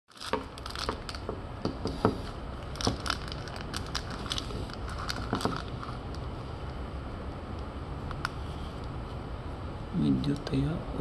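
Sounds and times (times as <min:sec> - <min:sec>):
crinkling: 0:00.1 - 0:01.4, 0:02.2 - 0:06.3.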